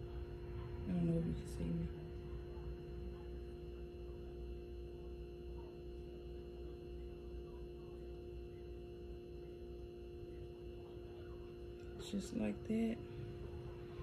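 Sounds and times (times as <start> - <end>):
steady pitched hum: 0.0 - 14.0.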